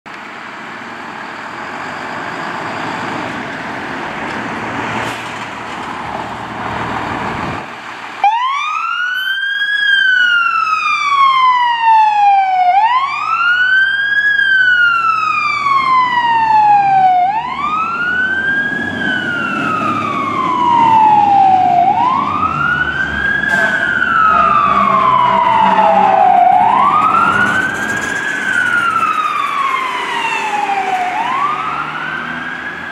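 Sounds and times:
fire engine engine running: 0:00.1 - 0:32.9
siren wailing: 0:08.2 - 0:32.9.

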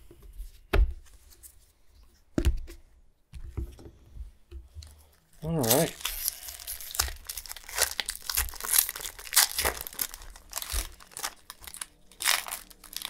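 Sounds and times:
foil wrapper crinkling and tearing: 0:05.4 - 0:13.0.

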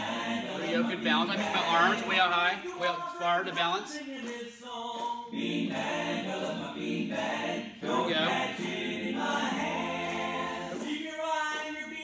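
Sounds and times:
man singing unaccompanied: 0:00.0 - 0:05.0.

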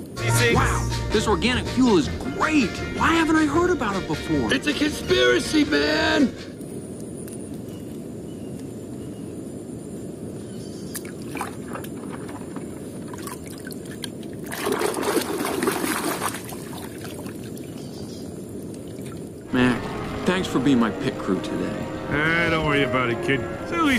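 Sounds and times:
running water rushing: 0:11.0 - 0:17.8.

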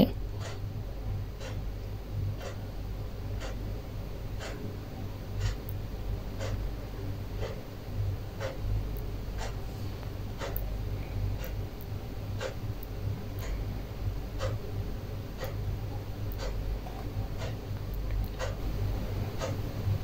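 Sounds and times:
steady low hum: 0:00.0 - 0:20.0
clock ticking: 0:01.4 - 0:01.7, 0:02.3 - 0:02.6, 0:03.3 - 0:03.6, 0:04.3 - 0:04.7, 0:05.4 - 0:07.7, 0:08.3 - 0:09.6, 0:10.3 - 0:10.8, 0:11.4 - 0:13.7, 0:14.3 - 0:19.7.

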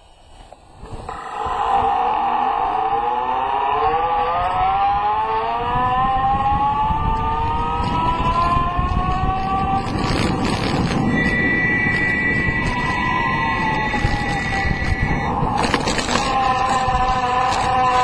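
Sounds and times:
electric motor whining: 0:00.7 - 0:18.0
wheels rolling on asphalt: 0:06.9 - 0:18.0.

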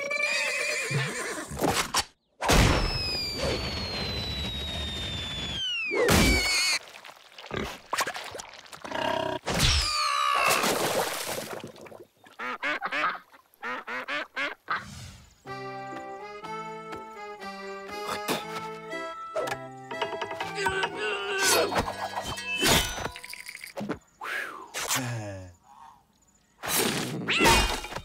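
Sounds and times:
cartoon falling whistle: 0:02.7 - 0:06.8
cartoon crash: 0:05.9 - 0:06.8.

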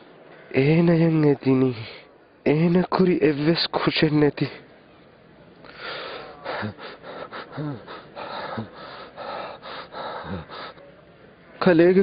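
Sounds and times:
man gasping in pain: 0:05.7 - 0:10.8
man groaning: 0:06.2 - 0:08.8, 0:10.2 - 0:10.8.

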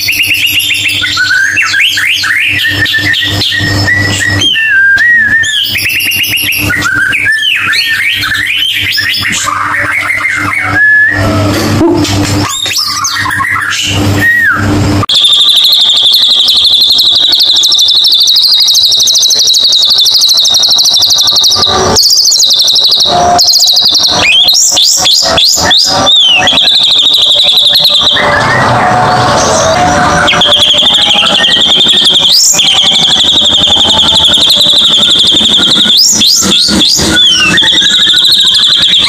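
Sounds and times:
bird whistles: 0:00.0 - 0:11.4, 0:12.4 - 0:28.7, 0:29.7 - 0:39.0
bird song with buzzing trills: 0:00.0 - 0:39.0.

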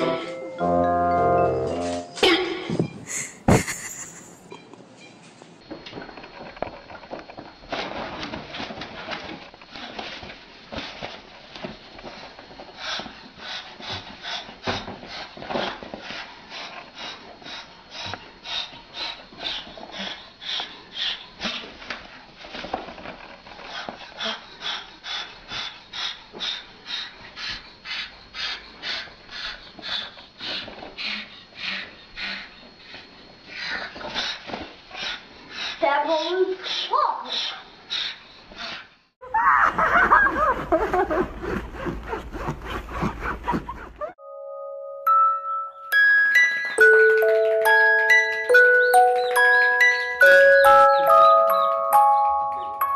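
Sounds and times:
cockatoo hissing: 0:35.0 - 0:39.0.

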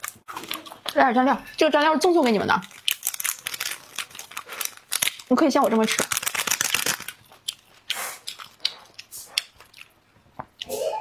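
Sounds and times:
paper sachet crinkling: 0:02.2 - 0:07.6
snack pieces clicking and rustling: 0:02.2 - 0:07.7
biting crispy snack: 0:02.6 - 0:09.9.

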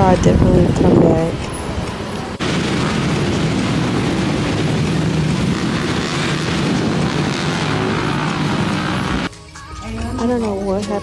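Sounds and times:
motorcycles riding past: 0:02.6 - 0:09.3.

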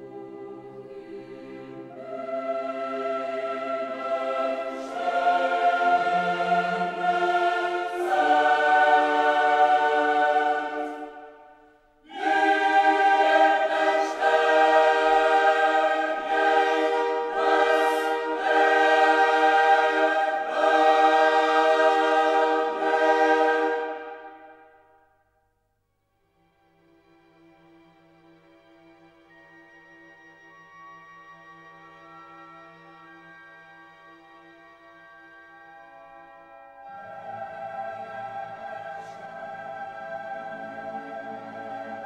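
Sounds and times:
choir singing held chords: 0:00.0 - 0:25.1, 0:36.4 - 0:42.0.

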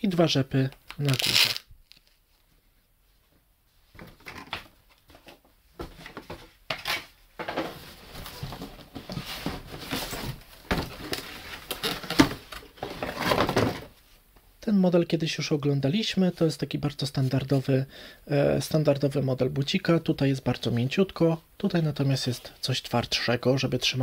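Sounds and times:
cardboard boxes rustling and scraping: 0:05.0 - 0:14.0.

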